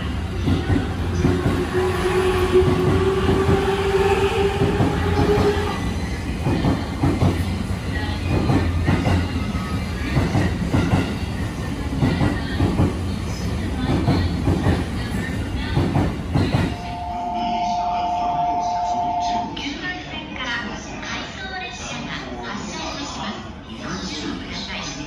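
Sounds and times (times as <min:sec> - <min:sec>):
low train rumble: 0:00.0 - 0:19.9.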